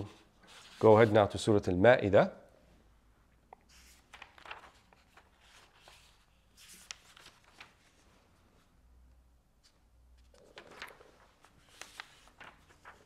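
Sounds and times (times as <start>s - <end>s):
book pages rustling: 0.0s - 1.3s, 3.6s - 8.7s, 9.6s - 13.0s.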